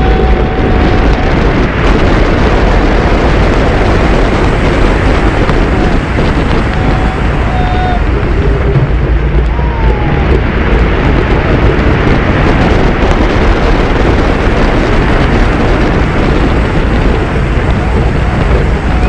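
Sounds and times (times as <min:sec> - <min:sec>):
roller coaster train rumbling on track: 0:00.0 - 0:19.0
wind buffeting microphone: 0:00.0 - 0:19.0.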